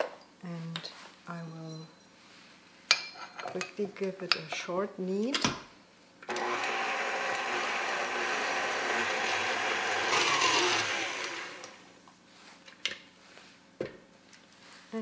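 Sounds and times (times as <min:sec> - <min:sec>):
stand mixer running: 0:06.3 - 0:11.8.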